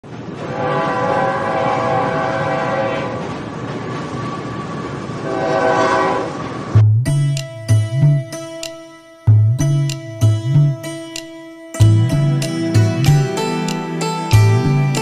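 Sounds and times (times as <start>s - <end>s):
locomotive engine and wheels rumbling: 0.0s - 10.9s
locomotive multi-tone horn: 0.4s - 3.3s, 5.2s - 6.5s.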